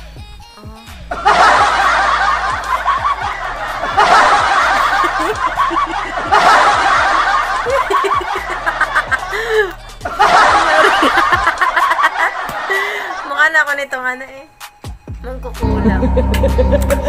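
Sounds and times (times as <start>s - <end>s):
canned crowd laughter: 1.1s - 13.3s.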